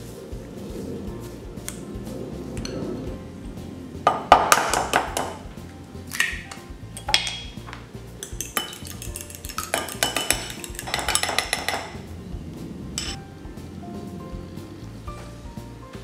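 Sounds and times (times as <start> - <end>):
light background music: 0.0 - 16.0
fork clinking in glass bowl: 8.2 - 12.0.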